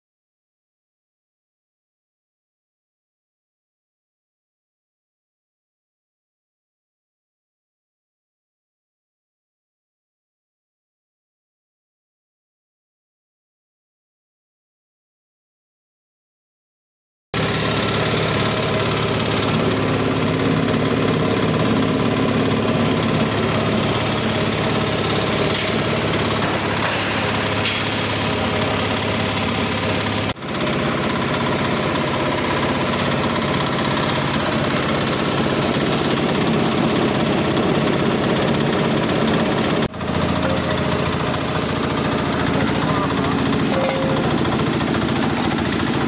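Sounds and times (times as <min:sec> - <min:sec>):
screw press running: 0:17.4 - 0:46.0.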